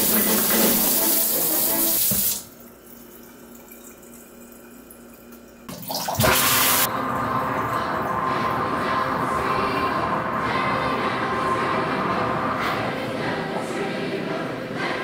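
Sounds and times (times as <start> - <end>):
water running from a tap: 0.0 - 6.9.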